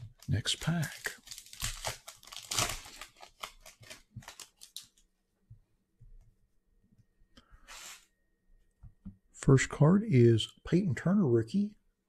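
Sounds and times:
plastic wrapper crinkling and tearing: 0:00.0 - 0:05.0.

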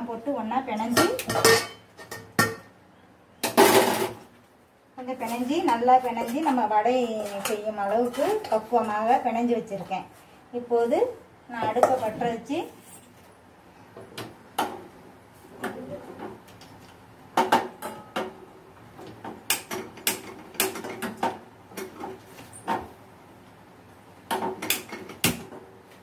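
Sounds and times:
steel utensils clinking and clanking: 0:01.0 - 0:02.7.

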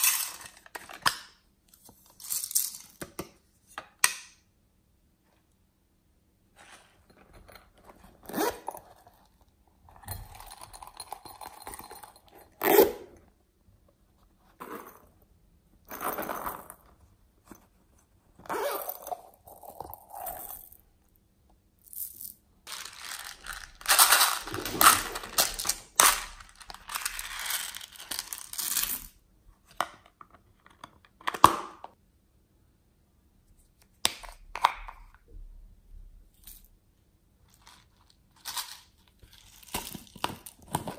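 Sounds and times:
plastic containers rustling and crinkling: 0:22.7 - 0:28.8, 0:37.6 - 0:40.9.

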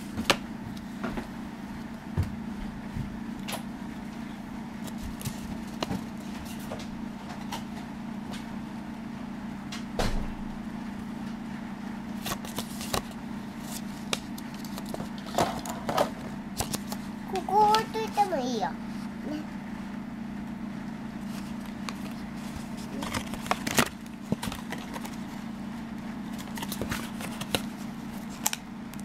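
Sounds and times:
steady low hum: 0:00.0 - 0:29.0
paper pages turning: 0:04.8 - 0:06.7, 0:12.2 - 0:15.8, 0:16.6 - 0:18.2, 0:21.2 - 0:25.4, 0:26.2 - 0:28.6.

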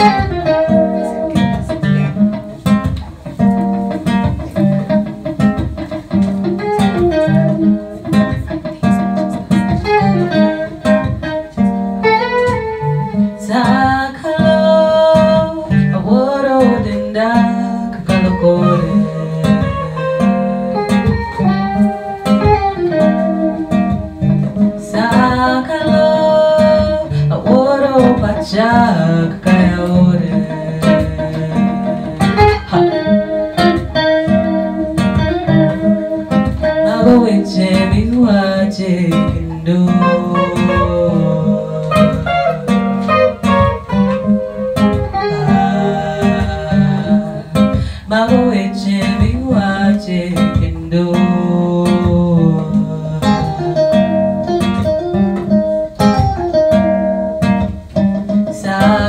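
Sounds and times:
acoustic and electric guitars: 0:00.0 - 0:59.0
woman singing: 0:12.4 - 0:22.2, 0:24.8 - 0:35.8, 0:36.5 - 0:54.3, 0:58.5 - 0:59.0.

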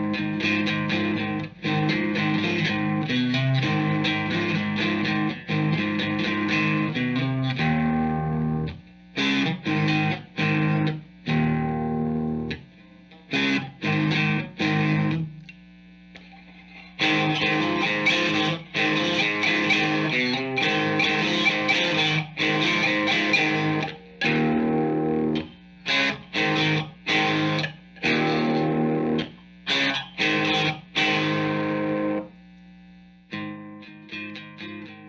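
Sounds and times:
amplifier low hum: 0:00.0 - 0:33.7
distorted electric guitar chords: 0:00.0 - 0:35.0.

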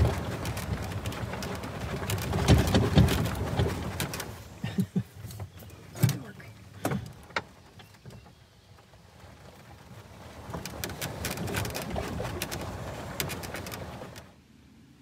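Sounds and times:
cart body rattling: 0:00.0 - 0:14.3.

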